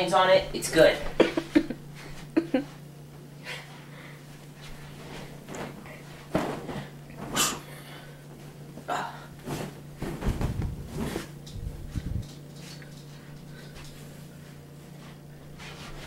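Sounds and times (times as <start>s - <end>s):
steady low hum: 0.0s - 16.0s
fabric rustling: 9.4s - 12.2s
soft bumps: 9.4s - 12.3s.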